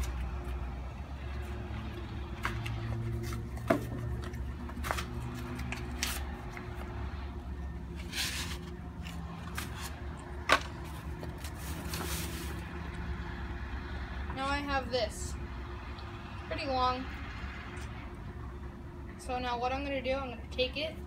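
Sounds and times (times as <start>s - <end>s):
plastic vine rustling and scraping: 2.3s - 6.9s, 7.9s - 12.9s.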